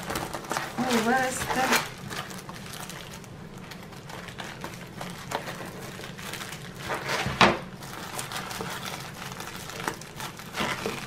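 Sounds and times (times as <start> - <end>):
scissors snipping plastic mailer: 0.0 - 2.6, 8.0 - 11.0
plastic mailer crinkling: 0.0 - 11.0
plastic rustling: 0.0 - 11.0.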